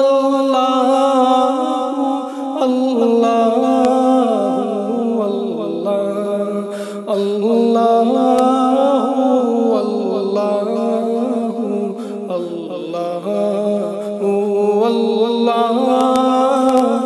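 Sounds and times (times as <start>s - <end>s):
solo voice singing chant-like melody: 0.0s - 17.0s.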